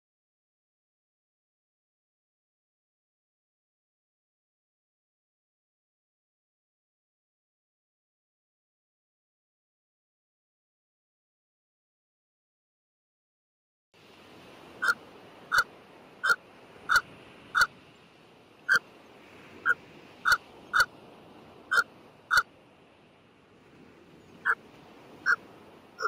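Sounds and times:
bird short sharp calls: 14.8s - 17.7s, 21.7s - 22.5s.

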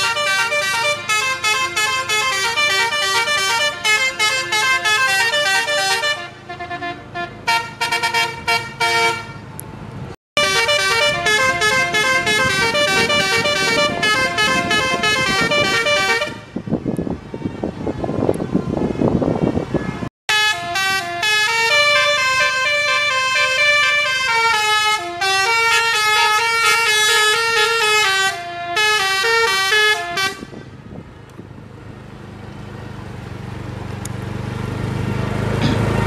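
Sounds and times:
musical multi-tone air horn: 0.0s - 9.4s, 10.4s - 16.6s, 20.3s - 30.7s
engine and road noise: 0.0s - 36.0s.

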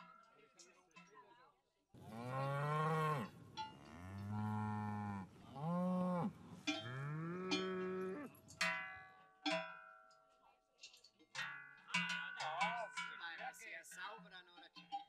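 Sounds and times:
cows mooing: 2.0s - 8.4s
cowbells ringing: 2.0s - 10.0s.

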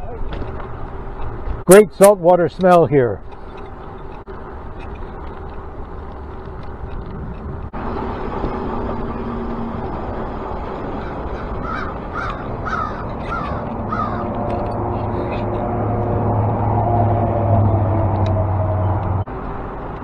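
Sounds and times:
wind and road noise: 0.0s - 20.0s
bird calling: 10.9s - 14.4s.

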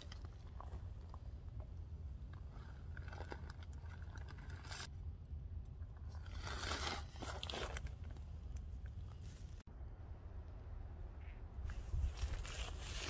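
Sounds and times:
low rumble: 8.1s - 12.6s.

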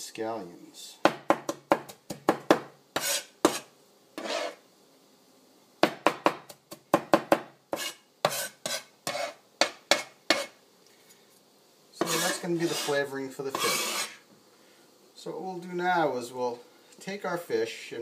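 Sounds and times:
blade scraping cutting board: 3.0s - 4.6s, 7.7s - 10.6s, 12.0s - 14.2s.

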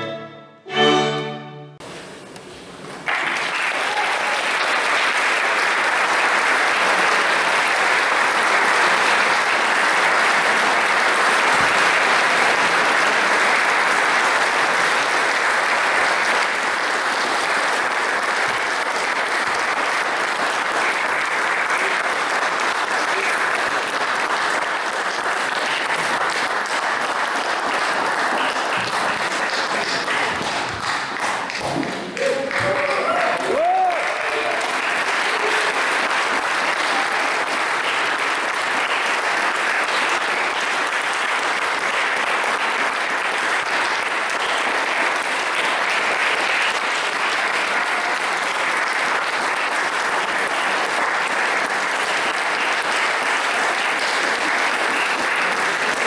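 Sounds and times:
music: 0.0s - 1.8s
audience applauding: 2.8s - 56.0s.

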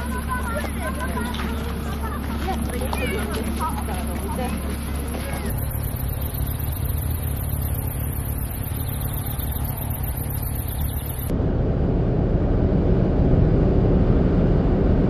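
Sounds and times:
faint high-pitched pulsing: 0.0s - 11.3s
tyres and engine rumble in car: 0.0s - 15.0s.

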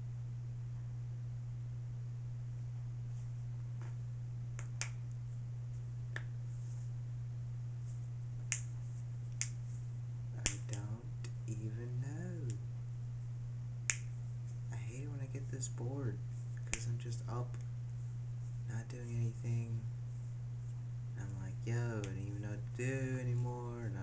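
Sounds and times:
low electrical hum: 0.0s - 24.0s
finger snapping: 4.6s - 5.0s, 6.1s - 6.4s, 8.5s - 9.6s, 10.4s - 11.4s, 13.9s - 14.1s, 16.6s - 16.9s.

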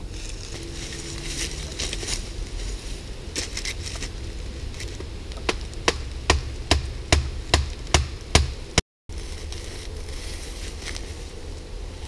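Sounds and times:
rustling in dry leaf litter: 0.0s - 6.2s, 9.1s - 12.0s.

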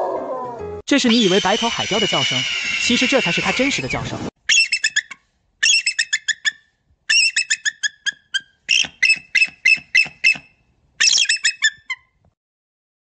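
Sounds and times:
animal calling in sharp high notes: 0.0s - 10.4s.

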